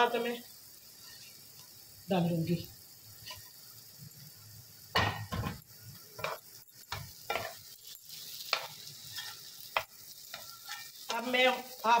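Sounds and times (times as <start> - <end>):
spoon scraping metal pot: 10.3 - 11.1.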